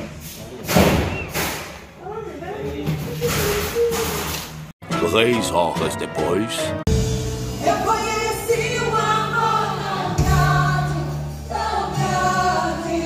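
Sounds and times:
choir singing long notes: 7.6s - 13.0s.

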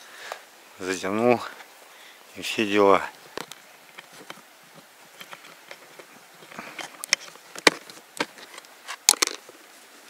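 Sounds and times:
light rustling: 3.0s - 10.0s.

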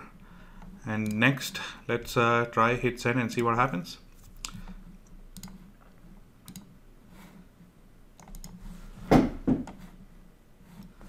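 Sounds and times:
low steady hum: 0.0s - 11.0s
mouse and keyboard clicks: 4.2s - 6.7s, 8.2s - 8.6s.

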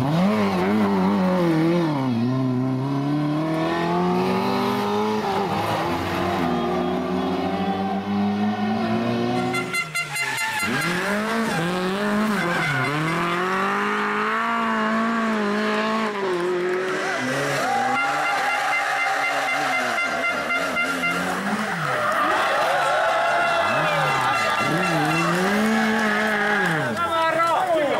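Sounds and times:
rally car engines revving: 0.0s - 27.9s
tyre squeal: 9.4s - 14.0s.

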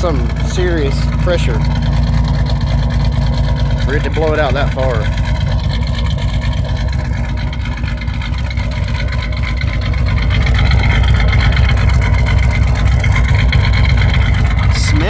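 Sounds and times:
misfiring engine exhaust idling: 0.0s - 15.0s.

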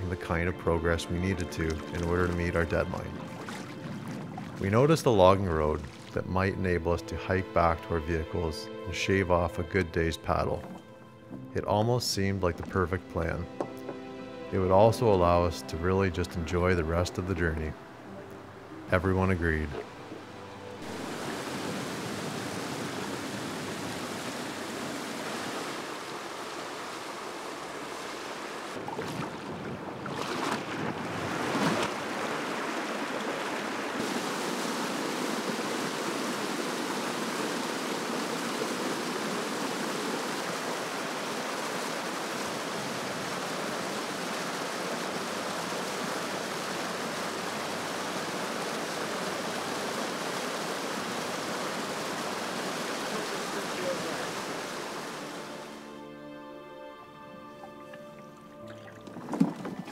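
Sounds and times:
waterfall pouring over rocks: 32.4s - 55.6s.

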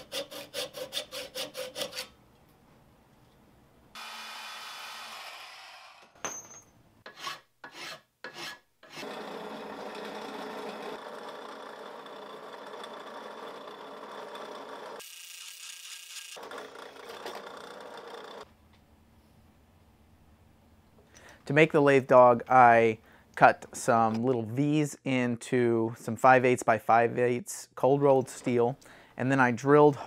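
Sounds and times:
band saw rasping through steel: 0.0s - 2.1s, 7.0s - 18.4s
drill press grinding into steel: 9.0s - 18.4s.

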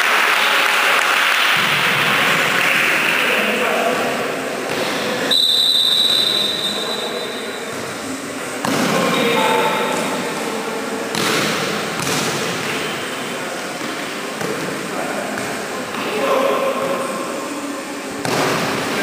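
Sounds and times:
referee's whistle: 5.3s - 7.6s
volleyball struck: 8.6s - 9.4s, 11.1s - 12.8s, 18.2s - 18.9s.

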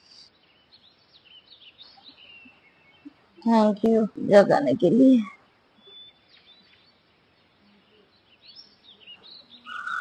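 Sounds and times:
high bird chirps: 7.6s - 10.0s.

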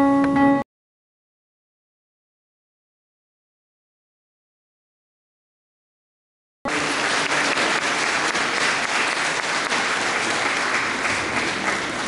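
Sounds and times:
audience applauding: 6.7s - 12.0s.

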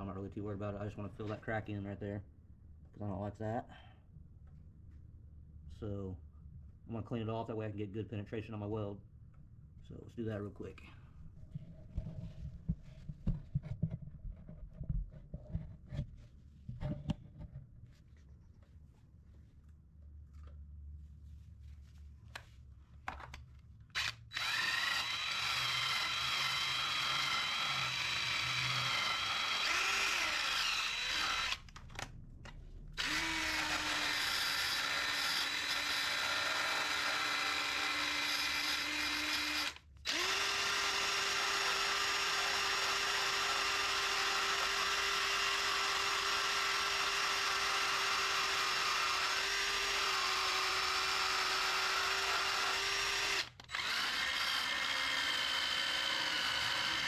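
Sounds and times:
drill grinding sheet metal: 24.0s - 31.7s, 33.0s - 57.0s.

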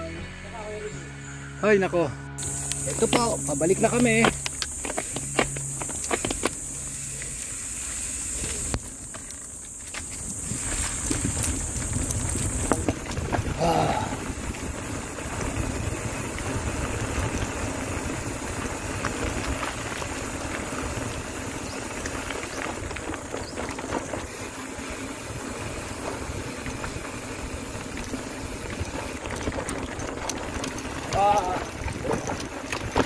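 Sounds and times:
bike tyres on dirt: 2.4s - 33.0s
small clicks and rattles: 8.3s - 13.4s, 15.2s - 24.9s, 26.0s - 33.0s
wind rumble on microphone: 9.9s - 33.0s.

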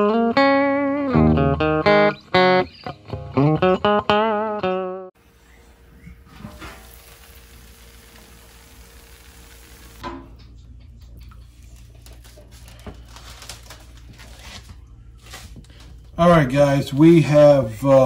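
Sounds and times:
low steady hum: 5.2s - 18.0s.

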